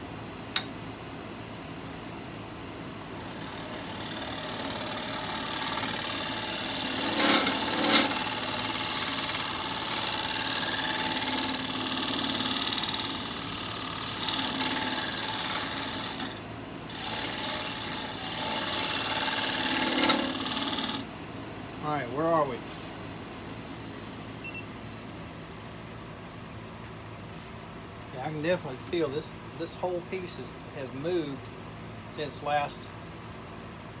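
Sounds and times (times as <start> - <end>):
tool cutting wood on lathe: 3.2 - 21.0
lathe humming: 3.2 - 21.1.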